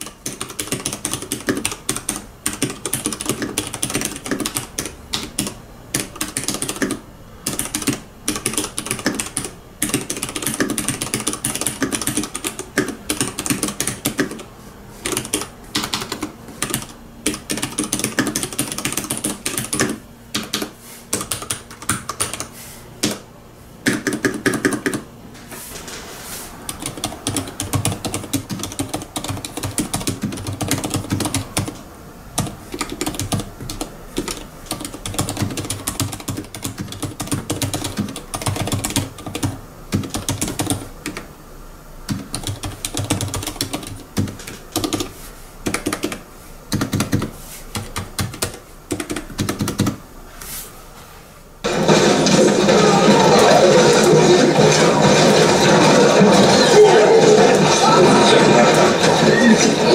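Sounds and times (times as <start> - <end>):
mechanical keyboard typing: 0.0 - 23.2, 23.8 - 25.0, 26.7 - 31.8, 32.4 - 41.3, 42.1 - 50.0.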